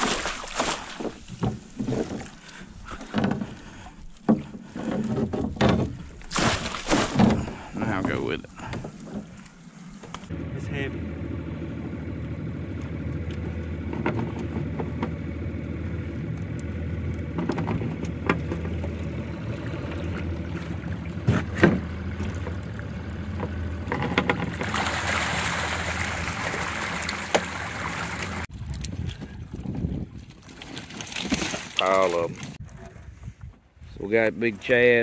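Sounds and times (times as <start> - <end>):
water splashing from net: 0.0 - 2.3, 6.2 - 7.5, 24.5 - 28.5, 30.4 - 32.0
net hoops knocking on boat: 0.0 - 9.4, 17.3 - 28.5
outboard motor idling: 0.0 - 28.5.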